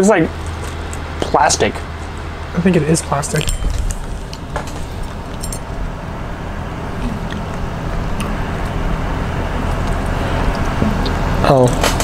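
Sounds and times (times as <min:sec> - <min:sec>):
low background rumble and hum: 0:00.0 - 0:12.0.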